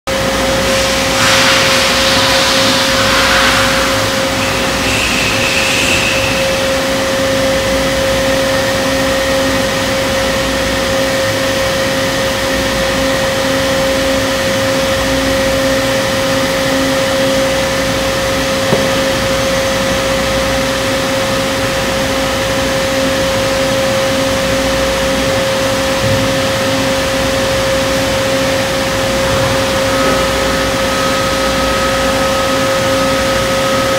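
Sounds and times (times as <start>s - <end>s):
machine whine and hum: 0.1s - 33.9s
burst of hiss: 0.6s - 6.8s.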